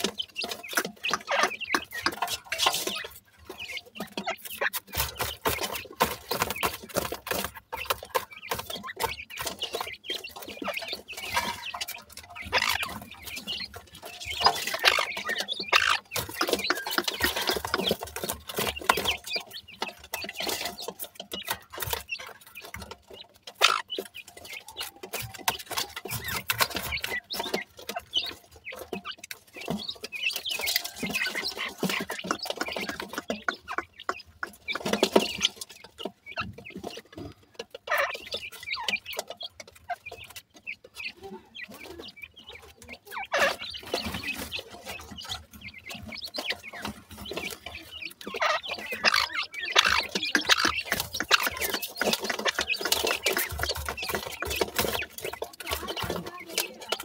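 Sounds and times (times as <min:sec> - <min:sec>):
chicks clucking: 0:00.0 - 0:57.0
pecking and scratching in metal basin: 0:00.0 - 0:57.0.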